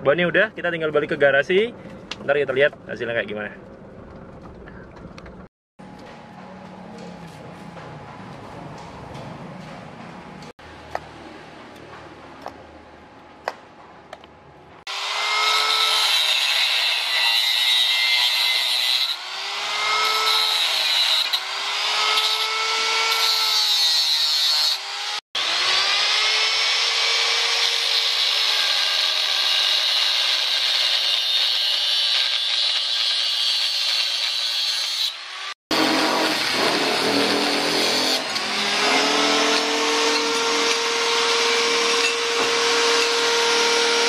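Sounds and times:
angle grinder cutting steel: 14.9s - 44.0s.

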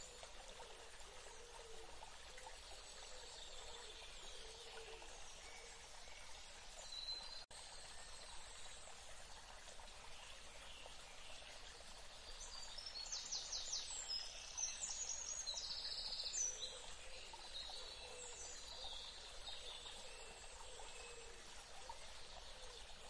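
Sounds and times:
stream running over rocks: 0.0s - 23.0s
songbirds singing: 9.8s - 23.0s.

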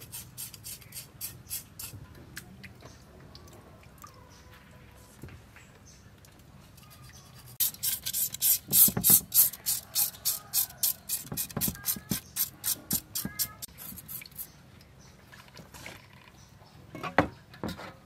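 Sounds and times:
knife scraping slimy fish skin: 6.9s - 14.5s.

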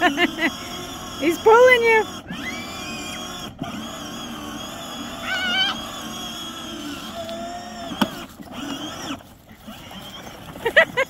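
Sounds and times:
dog whining: 5.2s - 6.0s.

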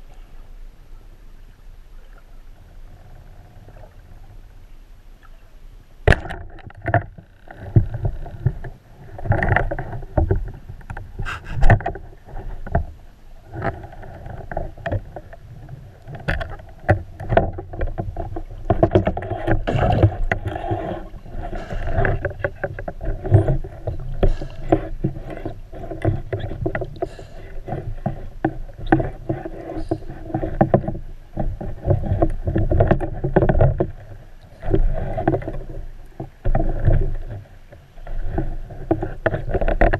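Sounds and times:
sharp underwater clicks and knocks: 6.1s - 39.9s
underwater rushing water: 6.1s - 39.9s.

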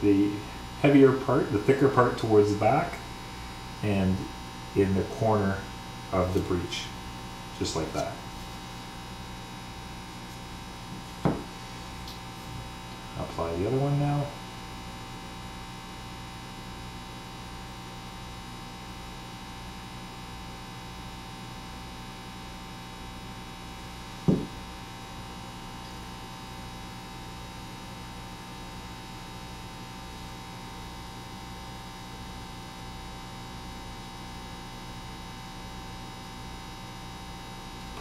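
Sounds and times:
electrical mains hum: 0.0s - 38.0s
short knock: 11.2s - 11.5s, 24.3s - 24.6s.

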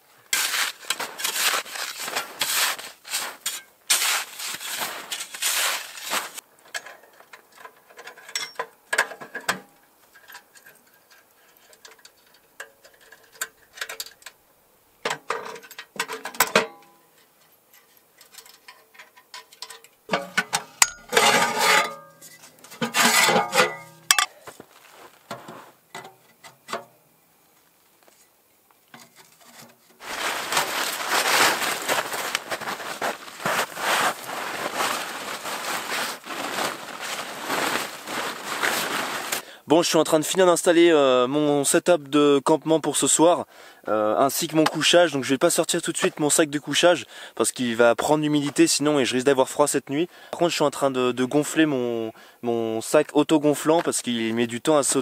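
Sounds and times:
fabric and gear rustling: 0.4s - 6.4s, 30.0s - 39.4s
snow scraped and packed by hand: 0.4s - 6.4s, 30.0s - 39.4s.

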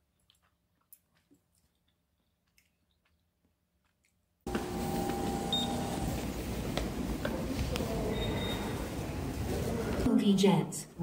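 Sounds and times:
subway station noise: 4.5s - 11.0s.

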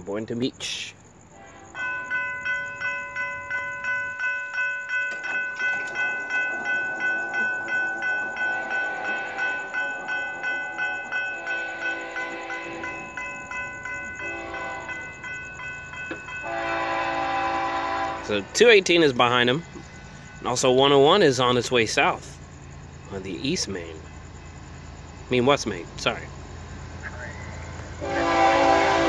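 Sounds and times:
distant locomotive horn: 1.3s - 1.8s, 6.5s - 13.2s, 14.1s - 15.2s, 16.4s - 18.5s, 27.2s - 29.0s
railroad crossing bell ringing: 1.3s - 29.0s.

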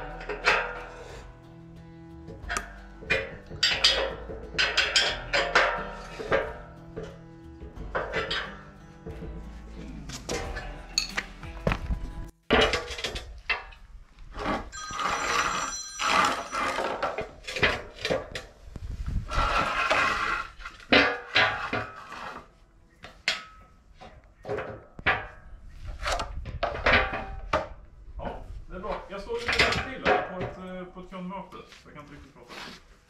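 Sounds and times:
background music: 0.0s - 13.9s
steel clanking and ringing: 2.4s - 7.2s, 7.9s - 9.4s, 10.3s - 11.2s, 14.6s - 17.9s.

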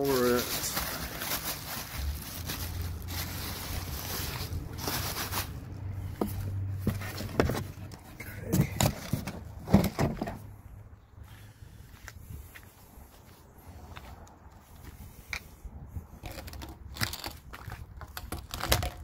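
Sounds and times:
plastic wrapping crinkling: 0.0s - 5.8s
cardboard rustling: 0.0s - 10.4s.

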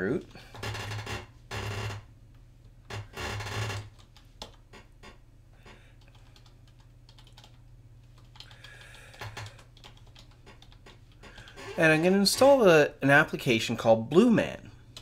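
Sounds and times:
computer keyboard typing: 3.8s - 4.6s, 6.0s - 11.6s.

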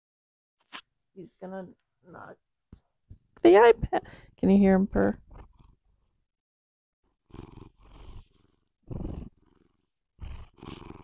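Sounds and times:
cat purring: 5.1s - 5.8s, 7.2s - 11.0s.

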